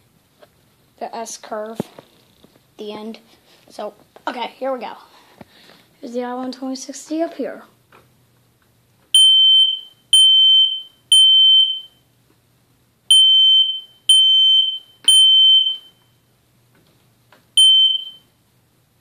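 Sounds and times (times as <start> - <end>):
smoke alarm high-pitched beeps: 9.1 - 12.0, 13.1 - 16.2, 17.6 - 18.3.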